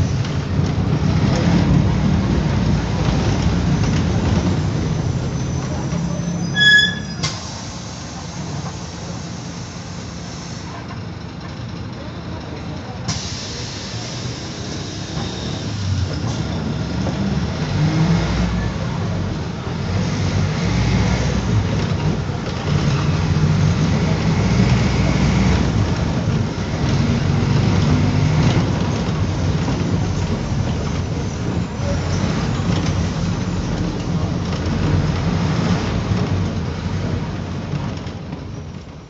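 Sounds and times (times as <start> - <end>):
bus engine droning: 0.0 - 39.0
road noise hiss: 7.1 - 10.9, 12.9 - 37.7.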